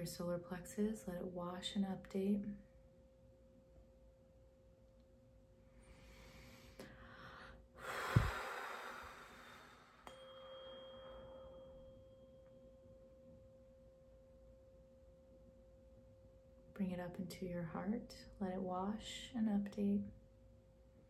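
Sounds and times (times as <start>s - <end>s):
breathy whoosh: 5.8s - 10.1s
tuning fork humming: 8.3s - 16.8s.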